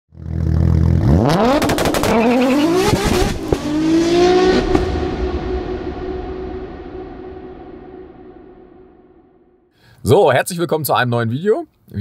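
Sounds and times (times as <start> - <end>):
exhaust cracks: 0.1 - 9.1
car engine revving: 0.2 - 9.0.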